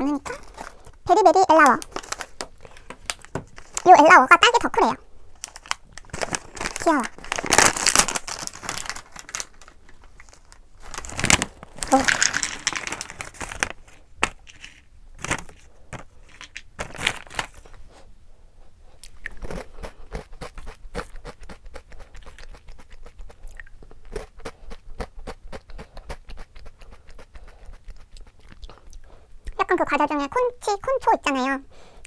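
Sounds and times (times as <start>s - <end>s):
foil snack bag rustling: 0.0s - 4.8s, 5.4s - 17.8s
snacks spilling into wooden bowl: 5.5s - 17.6s
crunchy chewing: 19.0s - 29.1s.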